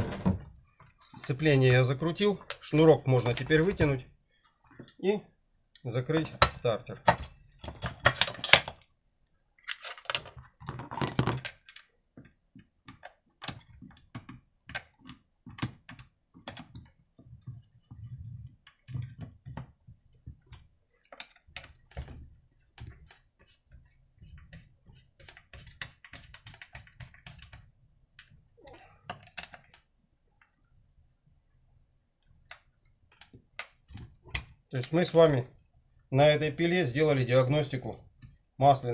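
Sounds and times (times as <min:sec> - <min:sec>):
plastic and metal clicks and rattles: 0:05.8 - 0:08.9, 0:09.6 - 0:30.6, 0:32.2 - 0:35.5.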